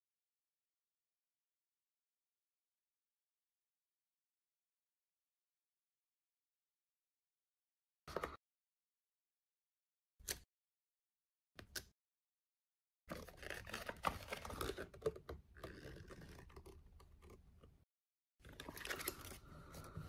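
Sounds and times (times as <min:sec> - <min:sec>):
paper rustling and crackling: 0:18.4 - 0:20.0.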